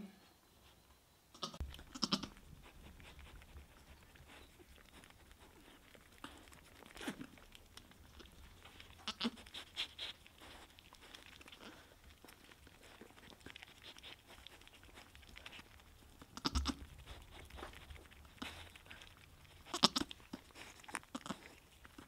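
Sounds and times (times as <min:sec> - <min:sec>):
goat low murmurs: 0:01.4 - 0:04.8, 0:16.2 - 0:17.3
goat wet licking sounds: 0:01.4 - 0:22.0.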